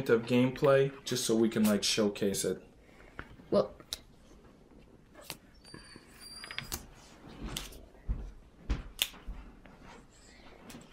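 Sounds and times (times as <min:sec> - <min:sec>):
faint high squeak: 0:05.6 - 0:06.8.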